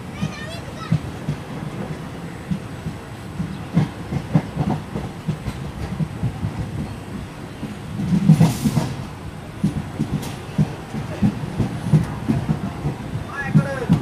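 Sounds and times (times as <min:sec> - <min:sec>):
locomotive rumble: 0:00.0 - 0:14.0
wheels clattering over rail joints: 0:00.0 - 0:14.0
burst of hiss: 0:08.4 - 0:09.2.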